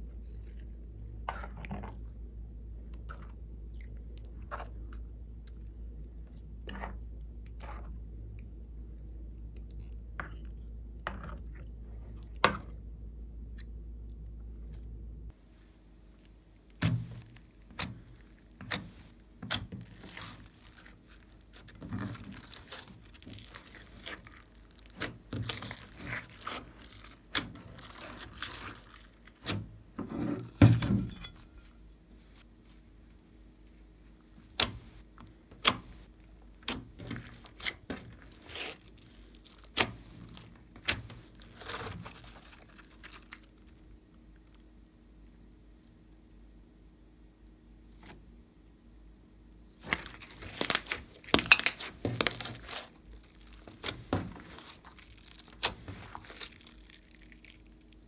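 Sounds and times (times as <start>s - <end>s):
sticky slime squelching: 15.5s - 32.5s, 34.1s - 44.7s, 49.8s - 58.0s.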